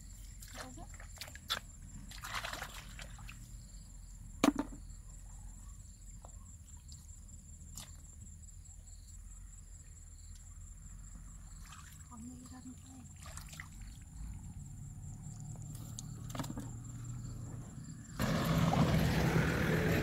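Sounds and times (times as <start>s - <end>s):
splashy rustle: 0.4s - 3.4s, 11.6s - 12.2s, 13.1s - 14.1s
high insect drone: 6.8s - 20.0s.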